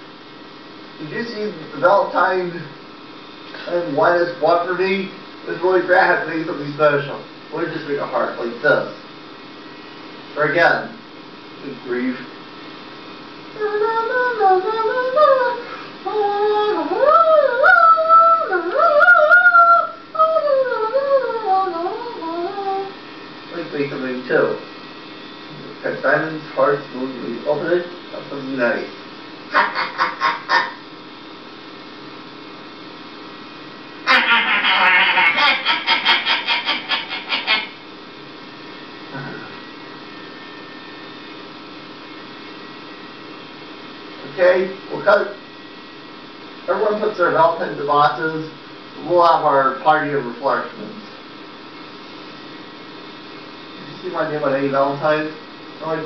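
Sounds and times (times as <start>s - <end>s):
electrical hum with hiss: 0.0s - 56.0s
person howling like a dog: 13.6s - 22.9s
rhythmic pulsing sound: 34.1s - 38.0s.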